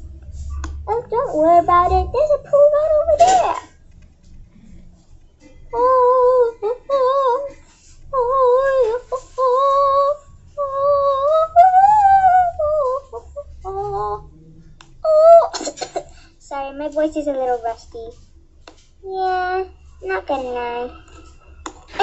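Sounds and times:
high voice singing wordless tune: 0.0s - 3.6s, 5.7s - 14.4s, 15.0s - 15.6s.

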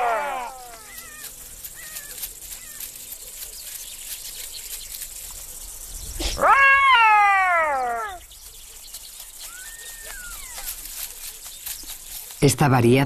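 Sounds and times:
wild animal call: 0.0s - 2.9s, 6.1s - 8.3s.

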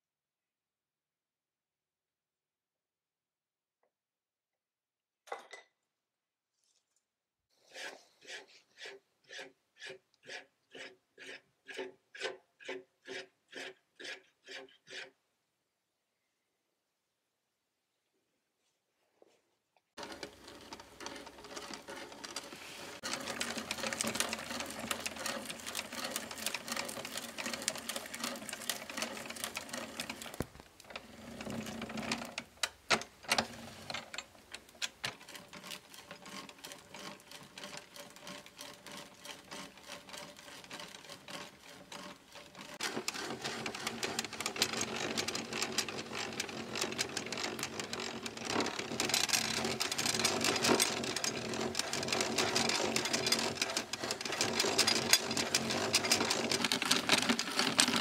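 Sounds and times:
auger bit chewing through wood: 20.0s - 32.0s, 34.8s - 58.0s
gearing clattering: 20.0s - 58.0s.

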